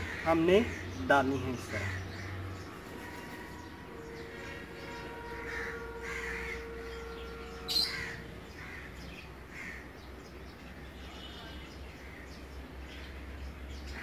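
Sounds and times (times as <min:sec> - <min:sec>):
crows cawing: 0:00.0 - 0:01.0, 0:01.6 - 0:10.0.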